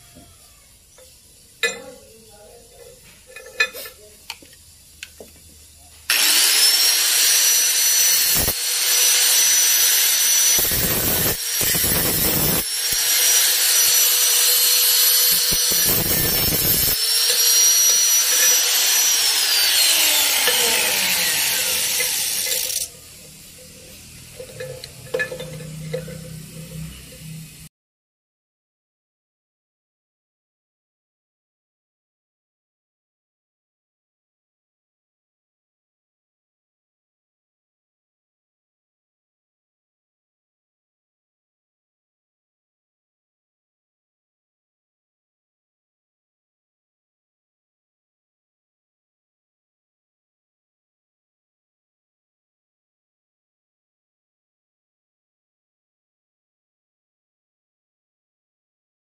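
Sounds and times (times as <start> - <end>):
angle grinder grinding metal: 1.6 - 4.1, 6.1 - 27.7
metal parts clinking: 2.8 - 4.1, 20.4 - 22.9, 24.3 - 27.2.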